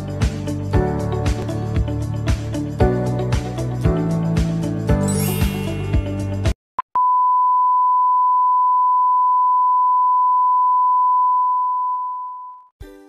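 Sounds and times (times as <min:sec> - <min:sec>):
steady test tone beep: 0:06.9 - 0:12.7.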